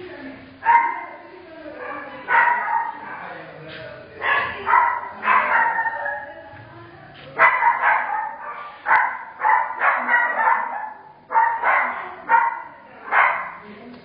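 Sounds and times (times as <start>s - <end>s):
dog barking: 0.6s - 1.2s, 1.8s - 3.3s, 4.2s - 6.4s, 7.4s - 13.6s.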